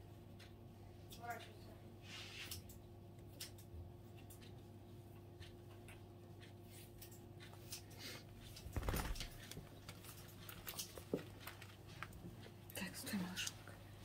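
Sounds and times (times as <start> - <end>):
low room hum: 0.0 - 14.0
faint clicks and rustles: 5.4 - 13.7.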